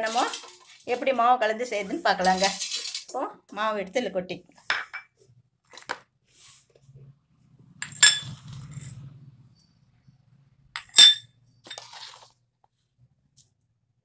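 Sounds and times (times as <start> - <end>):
dish clinking on steel bowl: 10.8 - 11.8.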